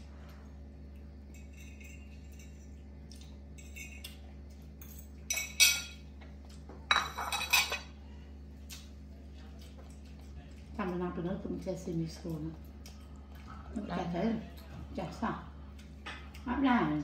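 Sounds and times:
steady low hum: 0.0s - 17.0s
metal bowl clattering on tiles: 4.8s - 6.0s, 6.9s - 7.9s.

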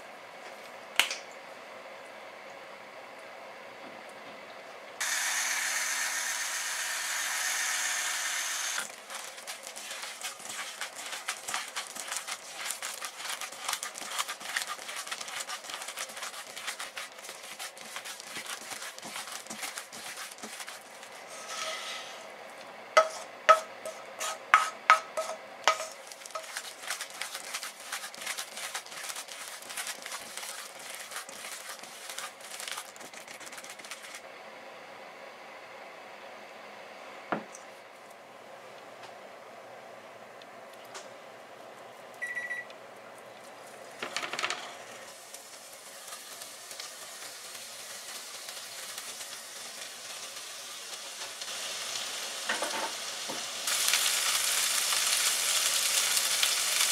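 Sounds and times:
hand squishing meat mixture: 8.8s - 21.3s, 25.7s - 34.2s.

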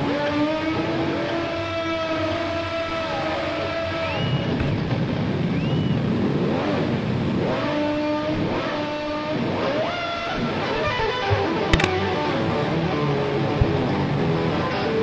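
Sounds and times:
wind noise: 2.9s - 15.0s
dirt bike engine revving: 6.3s - 14.2s.

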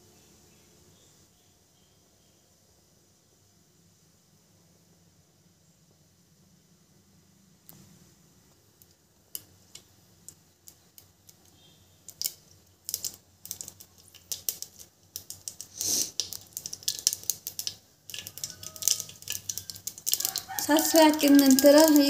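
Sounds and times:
seeds popping in hot oil: 7.6s - 22.0s.

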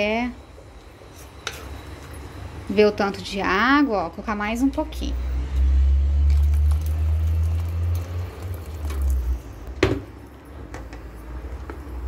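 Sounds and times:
water pouring into liquid: 5.9s - 9.8s.

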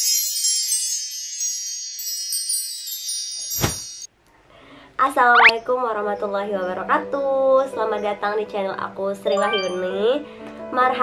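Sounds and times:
shimmering wind-chime tones: 0.0s - 4.1s.

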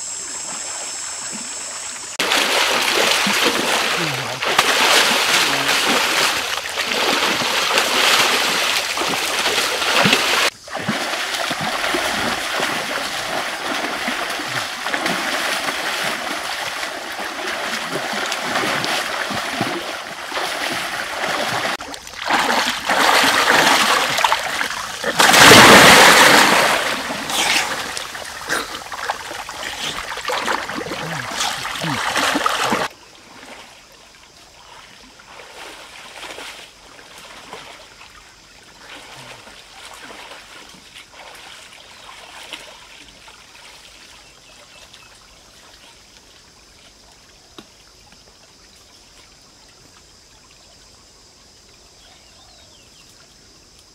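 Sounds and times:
water splashing in pool: 0.4s - 34.0s.

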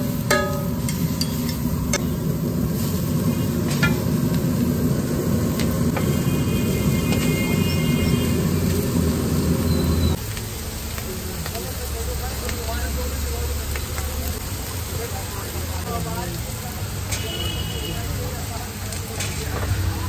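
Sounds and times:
steel spatula clanking on griddle: 0.0s - 2.2s, 3.6s - 4.2s
low rumble: 0.0s - 10.2s.

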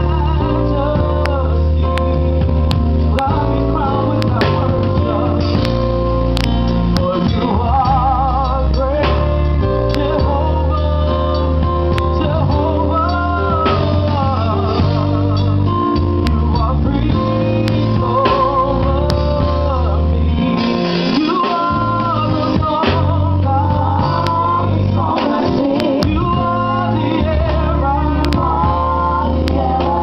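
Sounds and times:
band with bass and guitar: 0.0s - 30.0s
women singing gospel: 6.4s - 30.0s.

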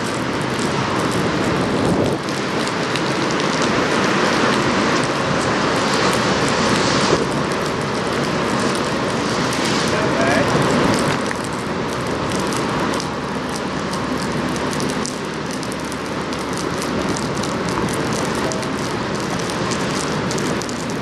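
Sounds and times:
steady rain: 0.0s - 21.0s.

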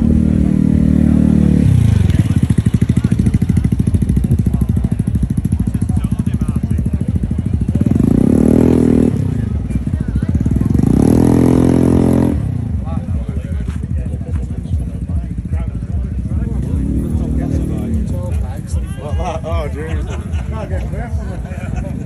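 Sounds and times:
scooter engine revving: 0.0s - 13.6s.

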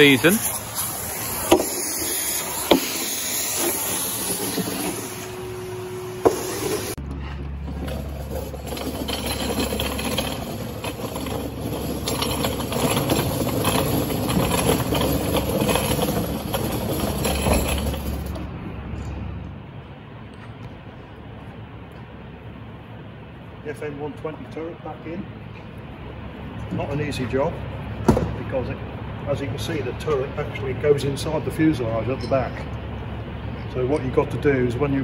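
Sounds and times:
vacuum cleaner hissing: 0.0s - 7.0s.

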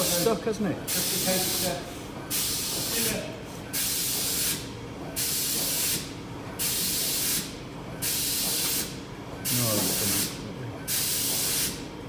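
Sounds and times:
steady machine hum: 0.0s - 12.0s
compressed air hissing bursts: 0.9s - 3.2s, 3.8s - 11.8s.

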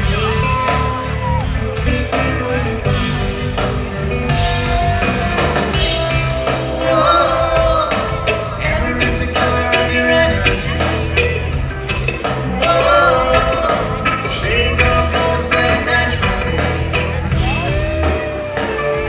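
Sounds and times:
person singing: 0.0s - 3.9s, 4.9s - 19.0s
live rock band: 0.0s - 19.0s.

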